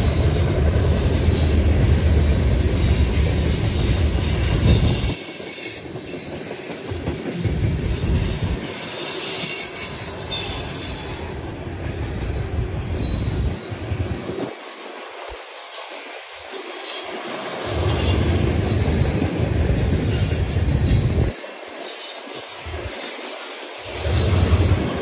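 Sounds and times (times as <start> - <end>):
freight cars rolling on rails: 0.0 - 25.0
wind rumble on microphone: 3.7 - 5.2.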